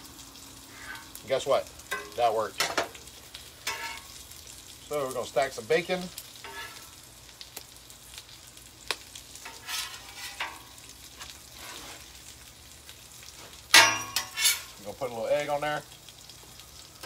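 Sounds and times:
bacon sizzling on griddle: 0.0s - 17.0s
metal spatula scraping cooktop: 0.7s - 1.2s, 3.7s - 4.1s, 6.4s - 6.8s, 9.4s - 12.0s, 13.8s - 14.8s.

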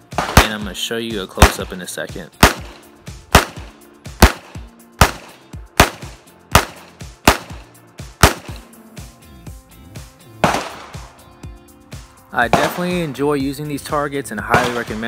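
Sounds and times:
handgun shots: 0.1s - 0.6s, 1.4s - 1.8s, 2.4s - 8.7s, 10.4s - 11.2s, 12.5s - 13.0s, 14.5s - 15.0s.

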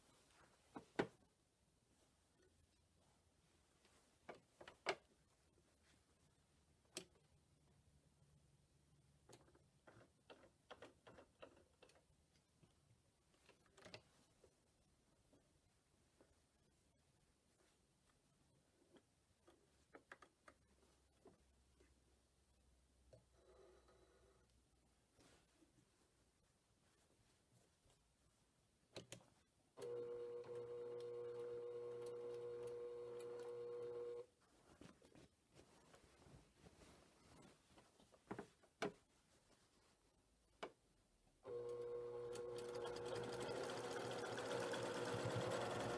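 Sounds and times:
sewing machine clicks: 42.2s - 45.9s.

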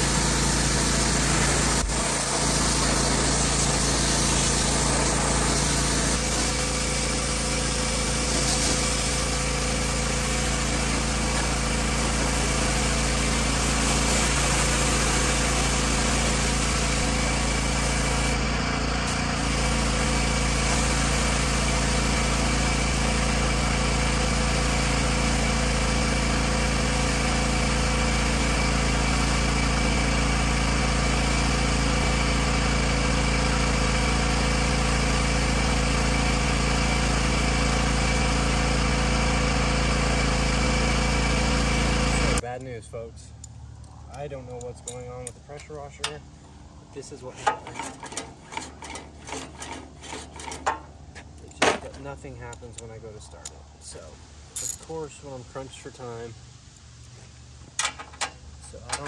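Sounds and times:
high-pressure water spray hissing: 0.0s - 18.4s, 19.1s - 23.5s
pressure washer engine running: 0.0s - 42.4s, 47.1s - 52.5s.

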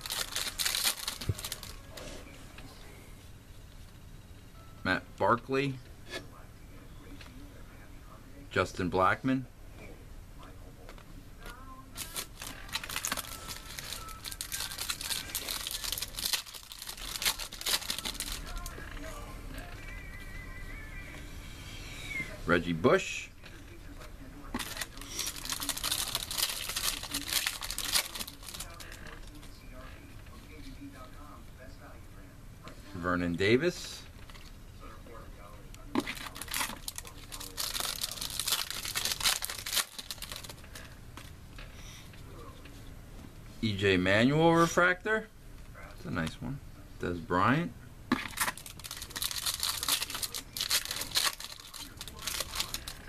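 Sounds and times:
foil wrapper crinkling: 0.0s - 1.9s, 12.0s - 19.0s, 24.6s - 29.4s, 36.0s - 40.9s, 48.2s - 53.0s.

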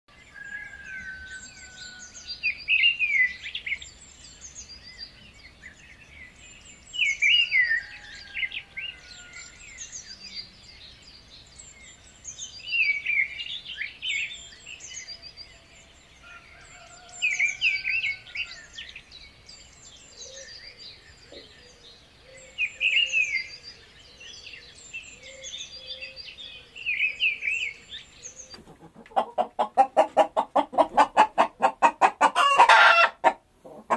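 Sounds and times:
bird chirping: 0.1s - 33.9s
faint high bird twittering: 0.2s - 28.9s.

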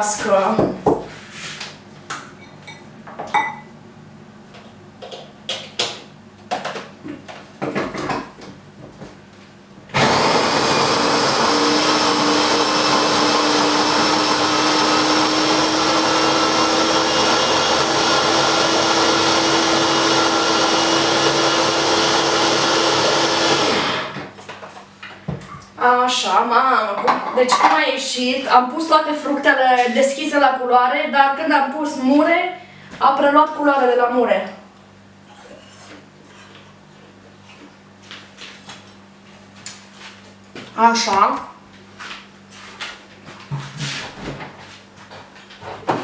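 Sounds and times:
blender motor whine: 9.9s - 24.3s.

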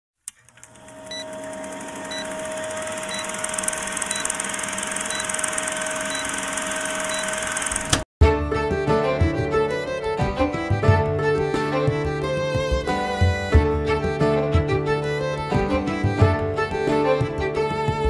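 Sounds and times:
film projector whirring: 0.3s - 8.1s
short high beeps: 3.0s - 7.5s
music: 8.2s - 18.0s.

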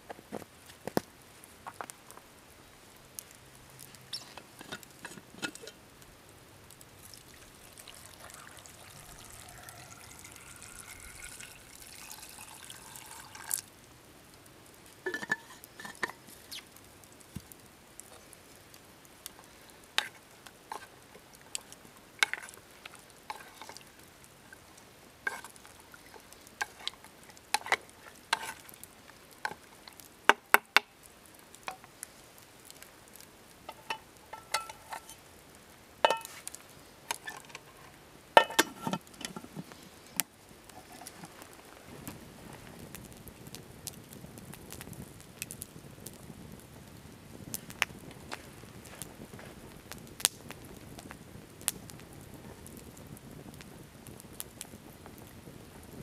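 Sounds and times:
campfire crackling and popping: 0.0s - 56.0s
water pouring into metal cup: 7.0s - 13.7s.

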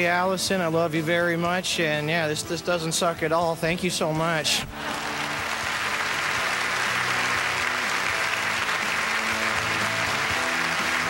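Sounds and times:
audience applauding: 4.7s - 11.0s.

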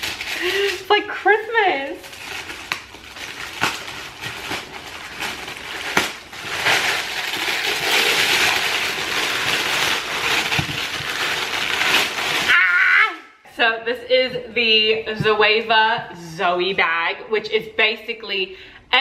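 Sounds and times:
packaging rustling and crinkling: 0.0s - 12.7s.

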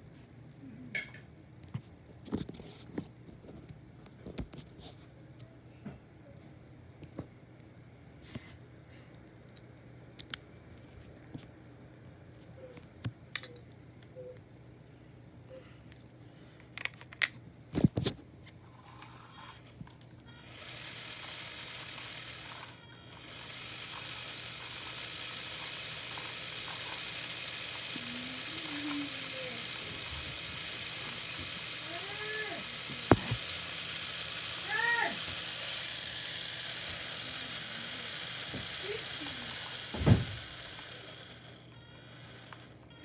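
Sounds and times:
electric motor whirring: 20.3s - 43.0s.

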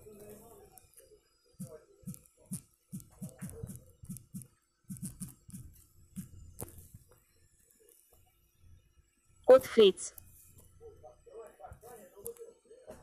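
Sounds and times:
fingertip taps on touchscreen: 2.1s - 6.8s.

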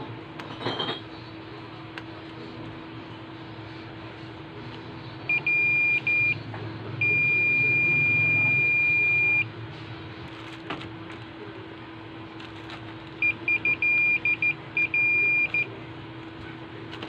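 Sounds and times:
multimeter continuity beeps: 5.3s - 6.4s, 7.0s - 9.5s, 13.2s - 15.8s.

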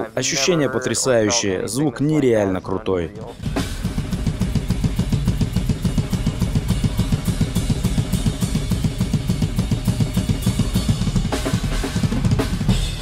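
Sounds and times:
heavy metal drumming: 3.2s - 13.0s
rapid bass drum strokes: 3.2s - 13.0s
crash cymbals: 3.4s - 13.0s.

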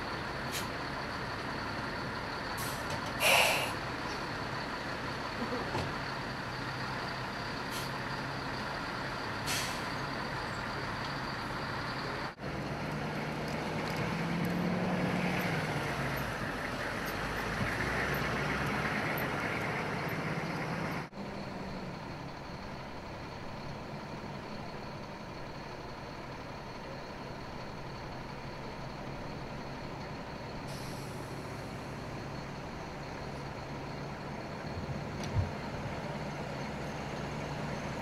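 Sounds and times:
diesel engines running: 0.0s - 38.0s
vehicle driving past: 12.4s - 21.1s.

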